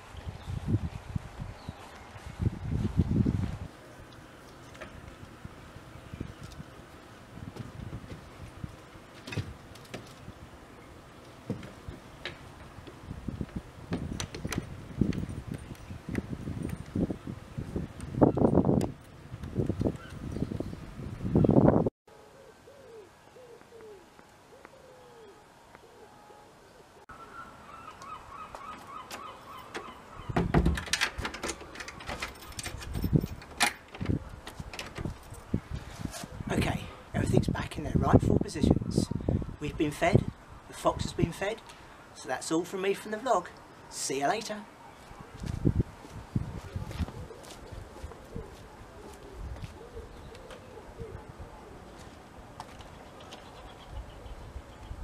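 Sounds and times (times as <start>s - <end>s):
metal latch clicking: 29.7s - 34.2s
wooden door knocks and bumps: 30.3s - 32.2s.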